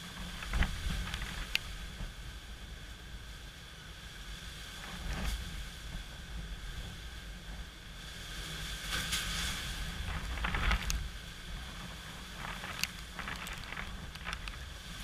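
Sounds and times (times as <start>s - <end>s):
hiss of wind and rain: 0.0s - 15.0s
wind rumbling on microphone: 0.0s - 15.0s.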